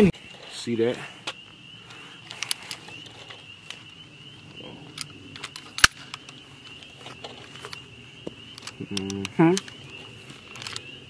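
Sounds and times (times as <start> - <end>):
rifle handling clicks and rattles: 2.2 - 3.9, 4.9 - 7.8, 8.5 - 11.0.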